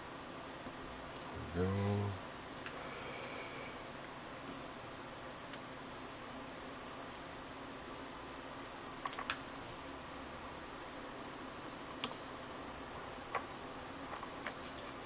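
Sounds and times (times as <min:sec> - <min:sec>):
faint steady hiss: 0:00.0 - 0:15.0
clips and wires clicking: 0:09.0 - 0:09.4.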